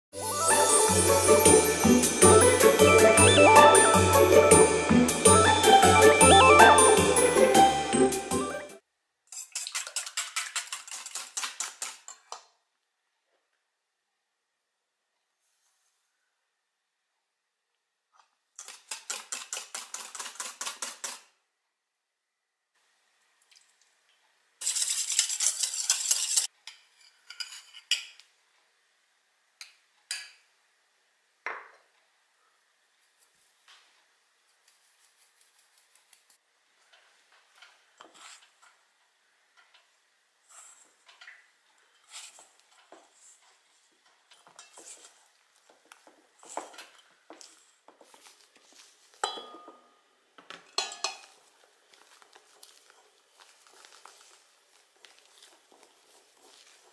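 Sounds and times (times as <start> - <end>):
whisk clattering in metal bowl: 24.6 - 26.5
wooden spatula scraping metal bowl: 38.0 - 38.8, 44.4 - 45.2.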